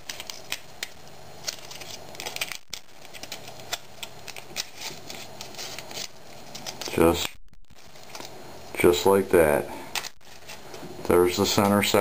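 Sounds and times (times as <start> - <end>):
aluminium sheet crinkling: 0.0 - 8.3.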